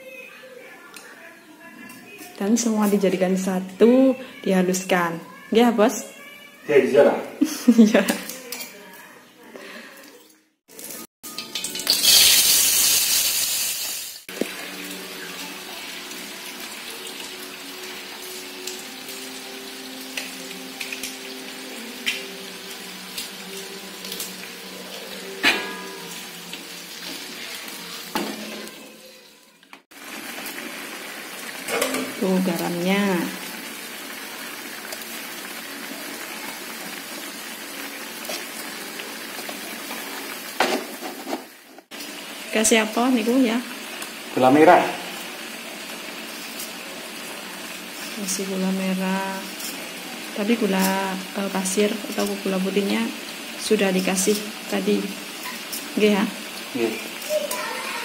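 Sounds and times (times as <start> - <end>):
oil hissing in a wok: 11.6 - 29.2, 29.9 - 58.0.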